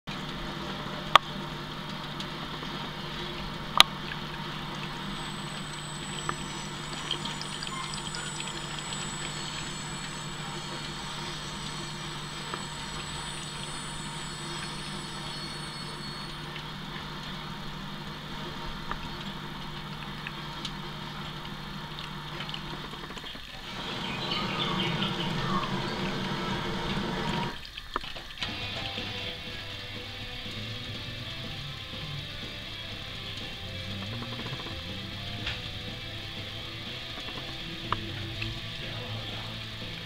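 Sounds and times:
steady low hum: 0.1s - 27.6s
water trickling into a metal sink: 0.1s - 40.0s.

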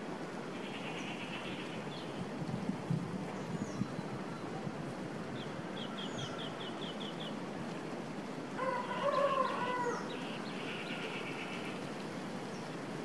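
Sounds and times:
rooster crowing: 8.6s - 10.1s.

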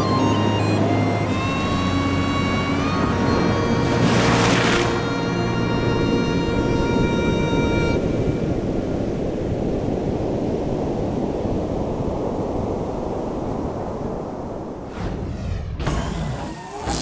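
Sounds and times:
waves washing over rocks: 3.1s - 5.2s.

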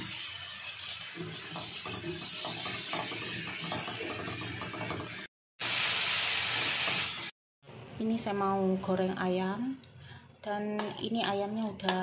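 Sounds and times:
spatula scraping frying pan: 0.0s - 5.3s
sizzling hiss from pan: 0.0s - 7.4s.

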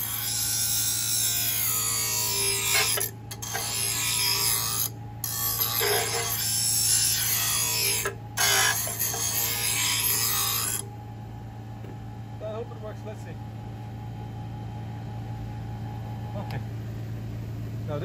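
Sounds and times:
grinder wheel grinding steel: 0.0s - 10.8s
grinder motor hum: 0.0s - 11.0s.

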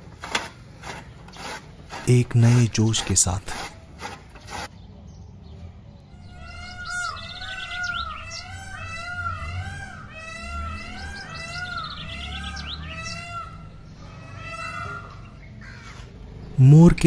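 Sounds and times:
peacock calling: 6.1s - 16.3s.

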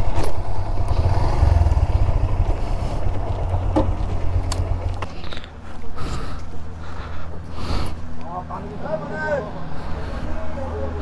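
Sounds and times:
motorcycle engine at low revs: 0.0s - 5.6s.

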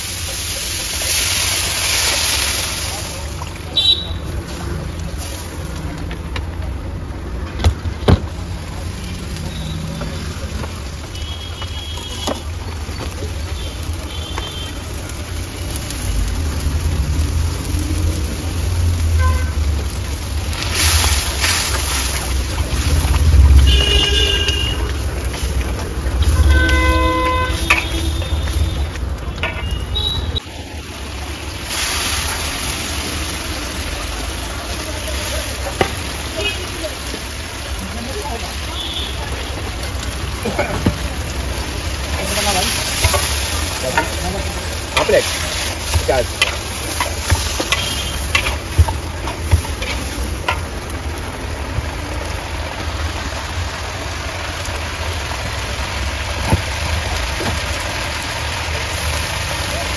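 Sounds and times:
sauce sizzling in a pan: 0.0s - 5.8s, 8.7s - 59.9s
low street rumble: 0.0s - 59.9s
metal utensils knocking on wok: 45.0s - 50.8s.

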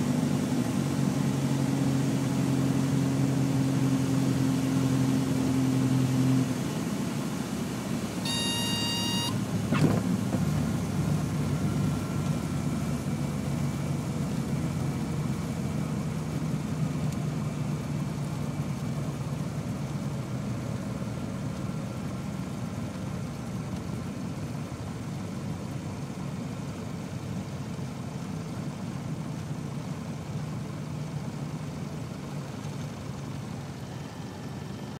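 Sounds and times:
propeller aircraft engine idling: 6.7s - 35.0s
brief beep: 8.2s - 9.8s.

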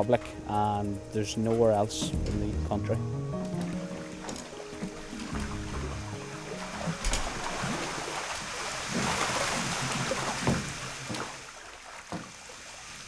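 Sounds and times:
water splashing in fish tank: 5.3s - 13.0s.

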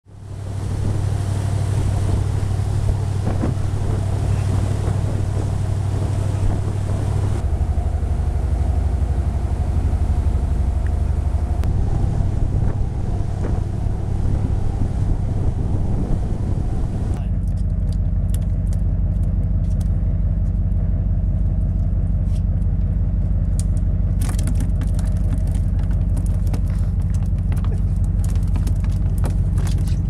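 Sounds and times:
boat engine running: 0.0s - 30.0s
wind buffeting microphone: 0.1s - 17.2s.

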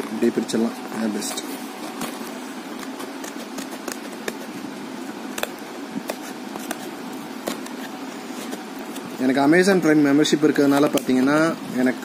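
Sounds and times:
scissors snipping cardboard: 1.8s - 9.1s.

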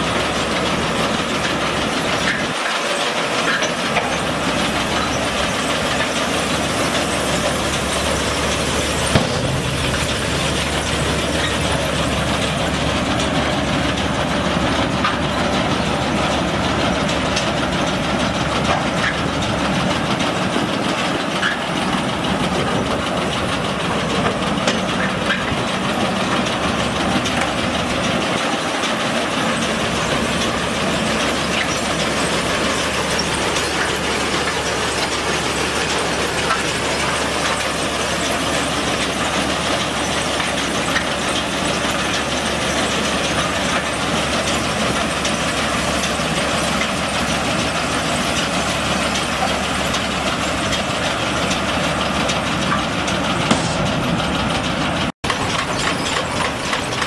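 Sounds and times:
baler mechanical clatter: 0.0s - 57.0s
tractor engine: 0.0s - 57.0s.

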